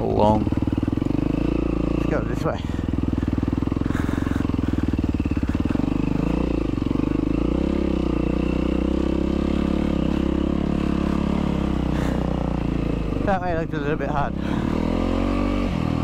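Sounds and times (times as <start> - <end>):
dirt bike engine running: 0.0 - 16.0.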